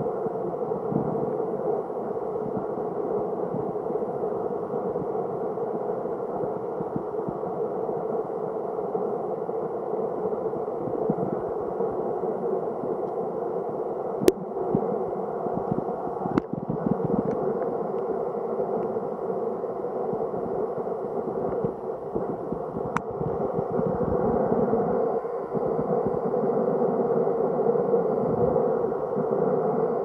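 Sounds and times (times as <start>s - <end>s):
muffled river water underwater: 0.0s - 30.0s.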